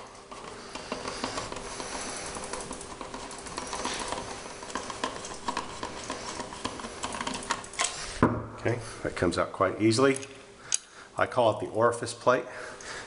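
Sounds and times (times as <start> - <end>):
screwdriver scratchy rasp: 0.0 - 7.9.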